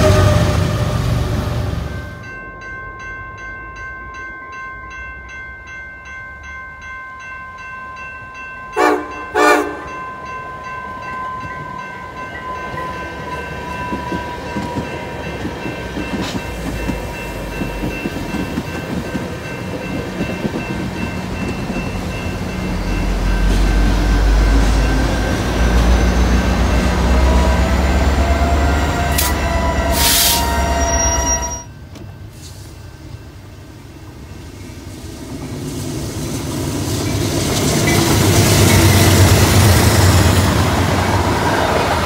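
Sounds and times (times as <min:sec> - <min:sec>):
train horn blasts: 0:00.0 - 0:01.2, 0:08.8 - 0:10.0, 0:28.3 - 0:31.7
crossing bell ringing: 0:00.0 - 0:34.9, 0:36.8 - 0:42.0
train rumble and wheel noise: 0:00.0 - 0:42.0.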